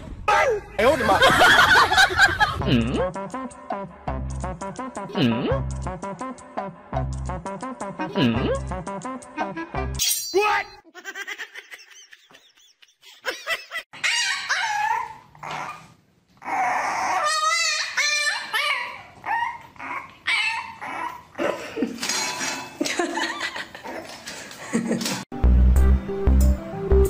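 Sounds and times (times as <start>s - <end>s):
puppy yipping and whining: 14.0s - 21.4s.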